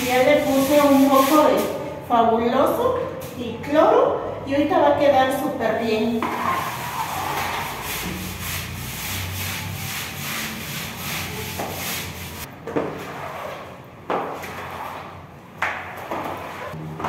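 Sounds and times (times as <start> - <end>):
brush scrubbing a wet floor: 0.0 - 1.9, 6.2 - 15.1.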